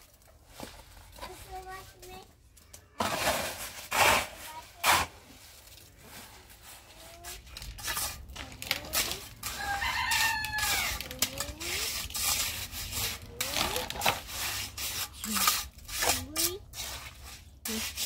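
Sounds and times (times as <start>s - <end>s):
scraping and knocking: 3.0s - 18.0s
rooster crowing: 9.5s - 11.0s.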